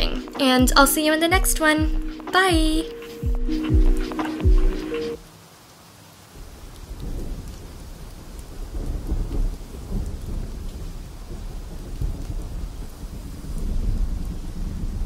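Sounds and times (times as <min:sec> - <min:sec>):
rain: 0:02.0 - 0:15.0
rolling thunder: 0:06.4 - 0:15.0.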